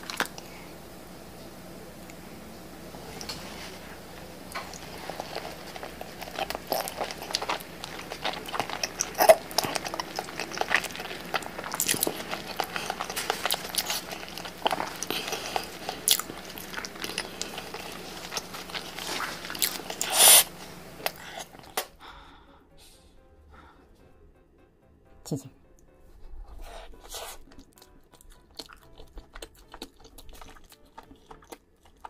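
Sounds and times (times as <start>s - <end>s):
wet chewing: 0.0s - 0.8s, 3.1s - 22.0s, 26.7s - 32.0s.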